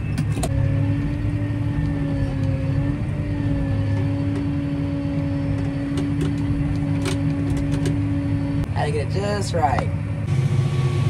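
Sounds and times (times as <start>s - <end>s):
steady whine: 0.0s - 11.0s
tractor engine rumble: 0.0s - 11.0s.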